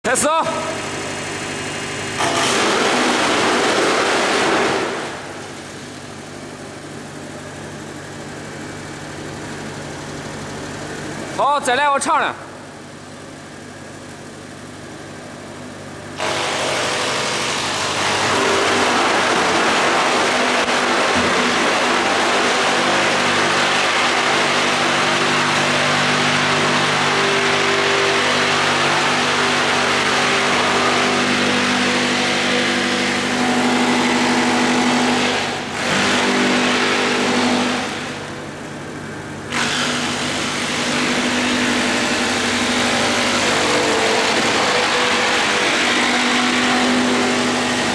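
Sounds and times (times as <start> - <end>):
wood chipper grinding pole: 0.0 - 11.9, 15.2 - 47.9
wood chipper humming: 0.0 - 47.9.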